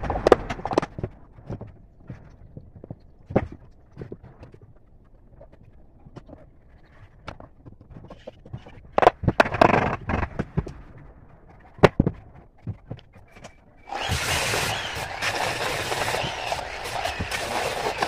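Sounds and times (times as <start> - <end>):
angle grinder sanding wood: 13.9 - 18.0.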